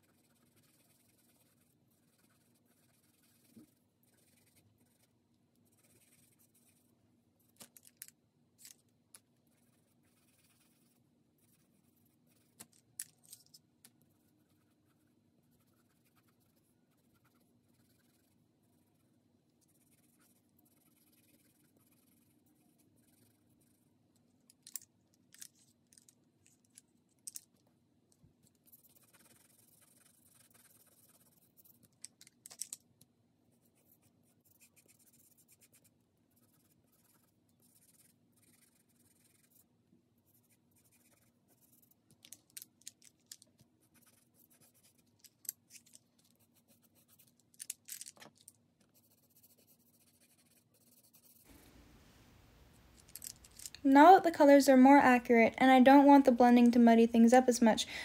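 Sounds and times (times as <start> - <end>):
pencil scratching on paper: 0.0 - 6.9, 9.4 - 12.7, 14.0 - 19.0, 19.6 - 23.9, 28.5 - 31.9, 33.5 - 42.0, 43.8 - 45.2, 46.3 - 47.3, 48.8 - 51.5.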